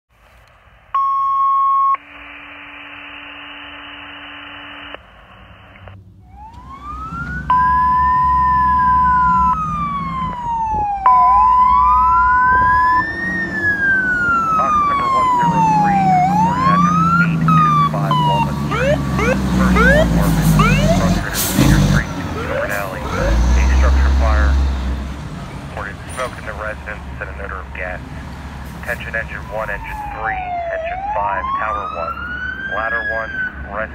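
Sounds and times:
steady high tone: 0.8 - 5.0, 6.3 - 24.5
radio alert tones: 0.8 - 24.6, 25.7 - 28.0, 28.8 - 33.9
engine rumble: 5.2 - 33.9
fire engine siren wailing: 5.8 - 33.9.

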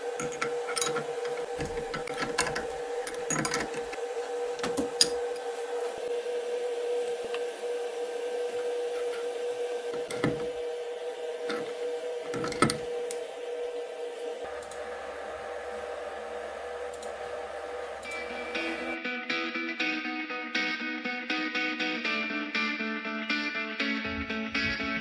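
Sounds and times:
steady machine hum: 0.0 - 19.7, 23.7 - 25.0.

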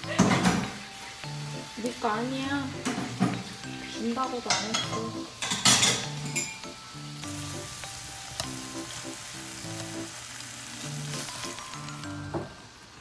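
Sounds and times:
meat sizzling in a frying pan: 0.0 - 13.0
chopsticks clicking: 8.4 - 8.6.

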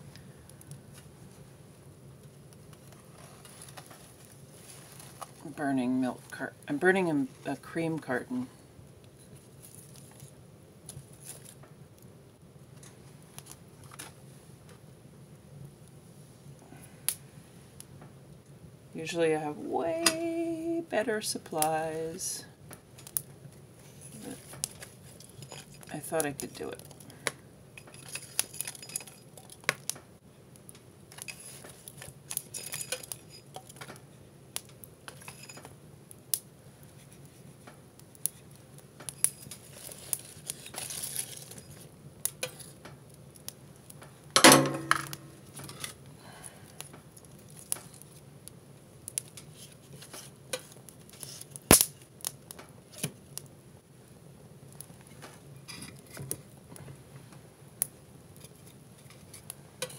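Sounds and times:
fire crackling: 0.0 - 59.9
metal tool clinking in stove: 27.8 - 29.6, 32.3 - 33.8, 44.4 - 45.8.

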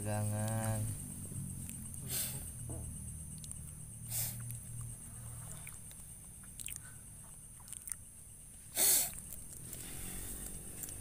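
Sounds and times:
low hum: 0.0 - 8.6
night insects droning: 0.0 - 11.0
faint ticks: 0.3 - 0.9.

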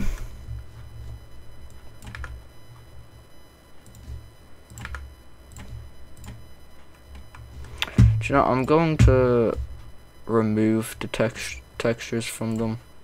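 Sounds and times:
low steady hum: 0.0 - 13.0
computer keyboard and mouse clicks: 2.0 - 2.4, 3.8 - 6.4.

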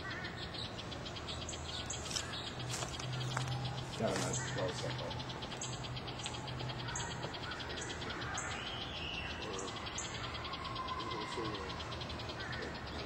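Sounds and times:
insects chirping: 0.0 - 13.0
faint bird call: 6.2 - 13.0.

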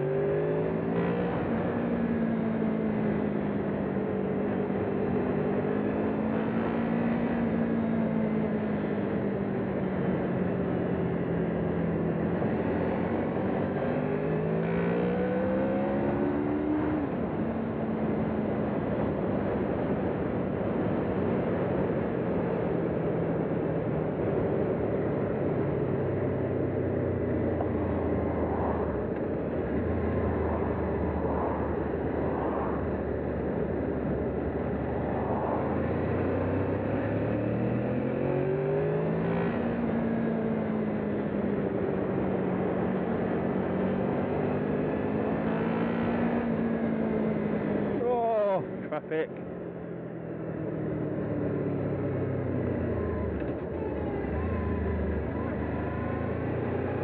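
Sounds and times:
motorcycle engine: 24.4 - 49.0, 50.9 - 57.0
wind rush on microphone: 27.6 - 37.2.

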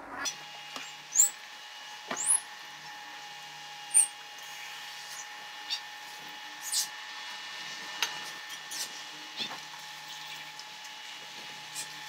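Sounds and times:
induction cooktop high whine: 0.0 - 12.0
fries sizzling in hot oil: 6.1 - 12.0.

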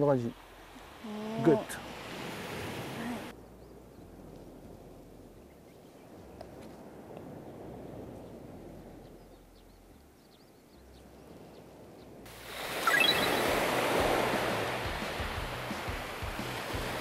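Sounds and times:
small waves washing on a beach: 0.0 - 3.3, 11.8 - 17.0
high blips: 12.7 - 13.8.

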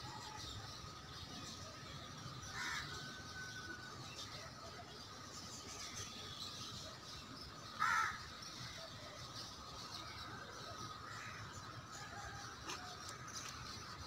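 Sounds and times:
faint bird chirping: 0.0 - 14.0
crow cawing: 2.6 - 2.8, 7.8 - 8.2.

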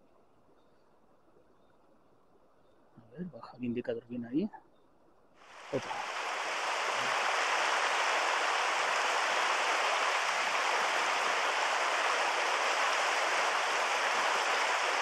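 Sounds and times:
river running over rocks: 5.5 - 15.0.

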